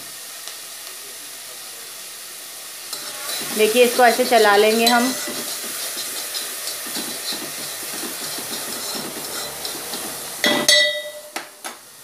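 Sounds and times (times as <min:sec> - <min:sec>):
vegetables sizzling in hot oil: 0:00.0 - 0:12.0
spoon scraping a pan: 0:02.9 - 0:11.4.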